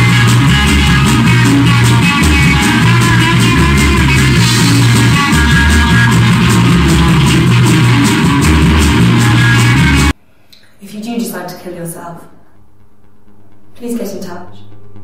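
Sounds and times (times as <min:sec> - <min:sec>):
rock music: 0:00.0 - 0:10.2.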